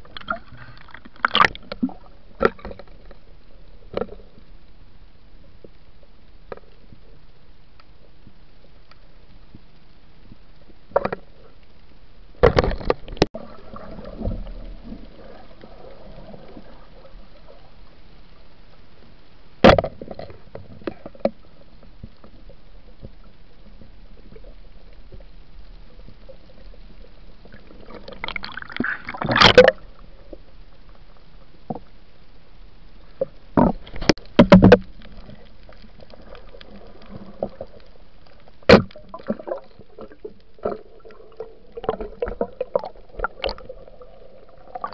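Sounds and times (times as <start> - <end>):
rushes of water bubbles: 12.4 - 17.8, 27.4 - 30.4, 33.7 - 44.9.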